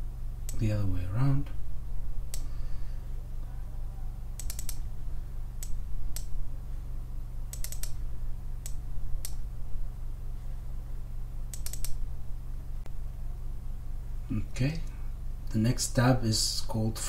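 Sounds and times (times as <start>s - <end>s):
low electrical hum: 0.0s - 17.0s
computer mouse clicking: 4.4s - 4.8s, 5.6s - 6.3s, 7.5s - 8.0s, 8.6s - 9.4s, 11.5s - 12.0s.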